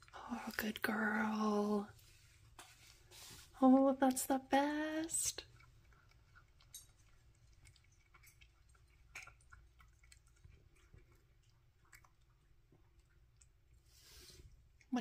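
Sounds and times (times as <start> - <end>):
cat chewing dry kibble: 5.3 - 14.9.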